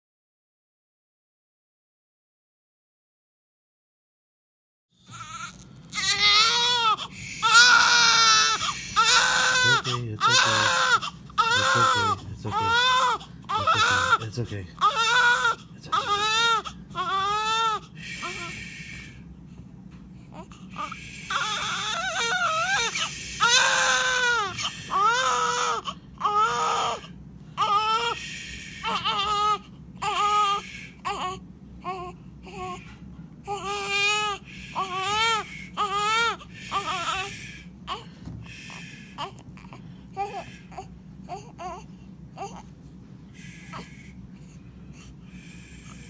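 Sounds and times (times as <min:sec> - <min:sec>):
newborn baby crying: 0:05.0 - 0:19.2, 0:20.3 - 0:32.8, 0:33.4 - 0:42.7, 0:43.4 - 0:44.2.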